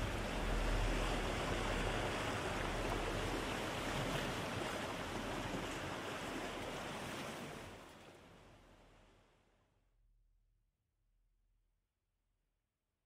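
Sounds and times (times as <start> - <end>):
ocean waves washing: 0.0 - 9.0.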